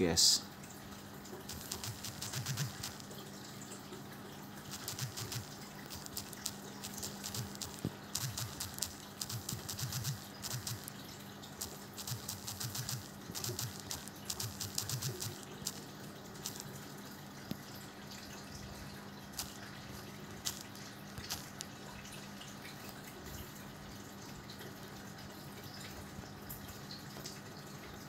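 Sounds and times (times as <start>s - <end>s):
steady low hum: 1.3s - 3.3s, 4.6s - 17.2s.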